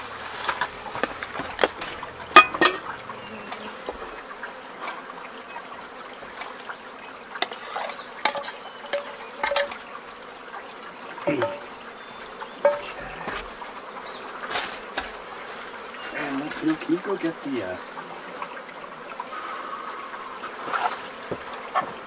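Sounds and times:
creek water flowing: 0:00.0 - 0:22.0
fork scraping metal pans: 0:00.3 - 0:03.1, 0:07.4 - 0:09.8, 0:11.3 - 0:11.7, 0:12.6 - 0:13.5.

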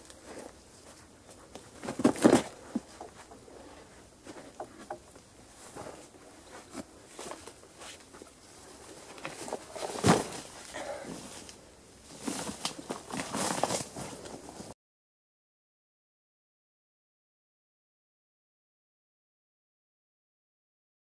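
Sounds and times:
footsteps in dry undergrowth: 0:00.0 - 0:14.7.

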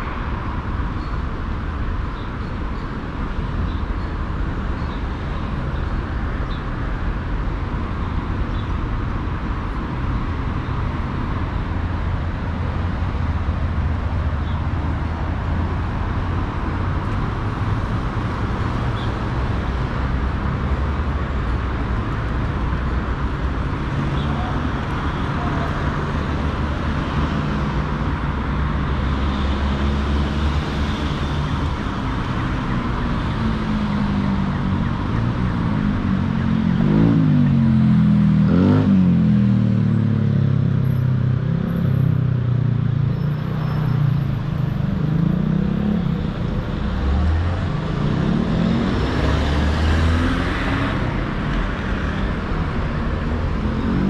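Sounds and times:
cars passing: 0:00.0 - 0:54.0
vehicle engine accelerating: 0:43.2 - 0:54.0.

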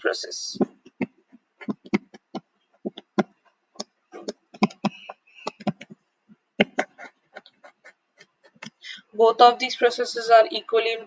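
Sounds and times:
stylus tapping on a touchscreen: 0:00.6 - 0:07.5.

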